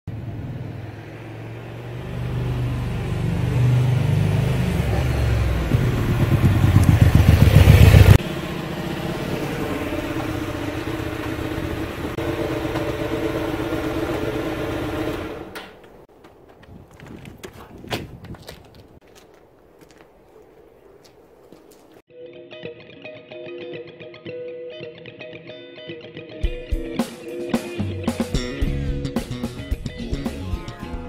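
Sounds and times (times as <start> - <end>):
motorcycle engine revving: 0.1 - 15.8.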